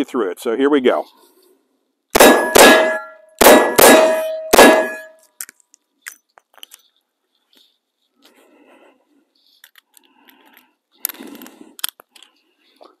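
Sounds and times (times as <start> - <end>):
revolver gunshots: 2.2 - 5.1
steel target ringing: 2.2 - 5.2.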